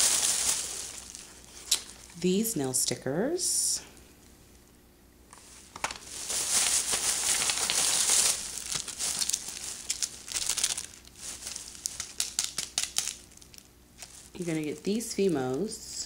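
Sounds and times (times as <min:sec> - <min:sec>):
plastic packaging crinkling: 0:00.0 - 0:02.1, 0:05.4 - 0:15.8.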